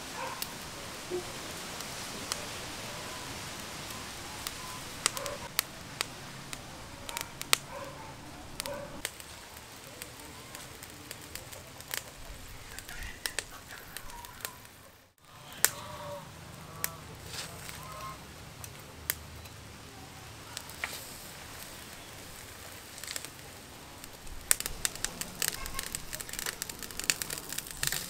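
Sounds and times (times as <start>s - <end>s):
birds chirping: 0.0s - 27.6s
fire crackling: 0.0s - 28.0s
chickens clucking: 10.2s - 18.3s.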